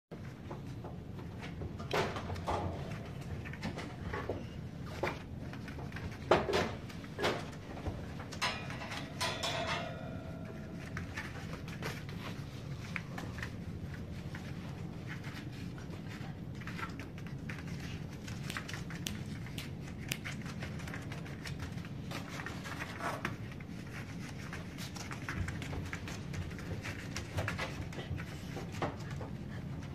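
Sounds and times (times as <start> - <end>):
puppy claws clicking on wooden floor: 15.1 - 29.9.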